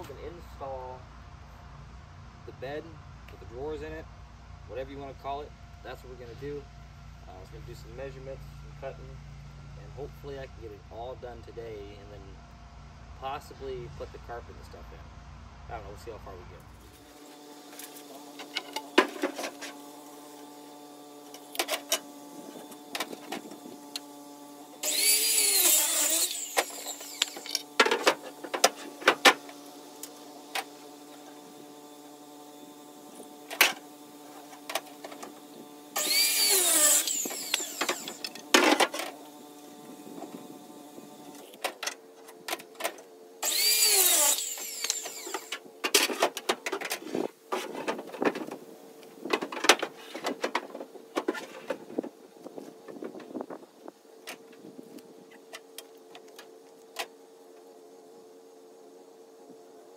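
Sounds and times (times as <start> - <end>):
power saw cutting wood: 16.8 - 48.6.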